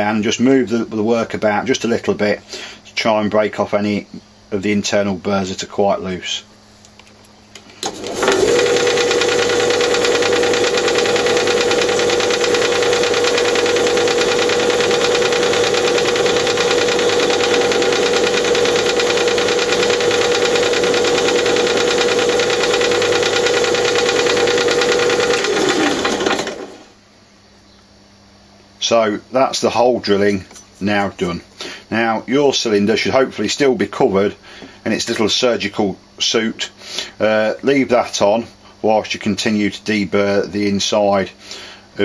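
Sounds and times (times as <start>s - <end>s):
pillar drill motor running: 7.6s - 27.0s.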